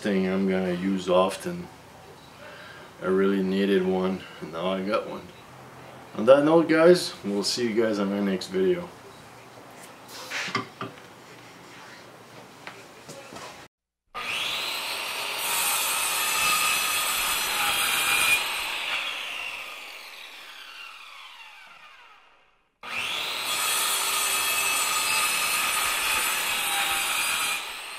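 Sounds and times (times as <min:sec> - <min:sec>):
power saw cutting wood: 0:14.2 - 0:27.9.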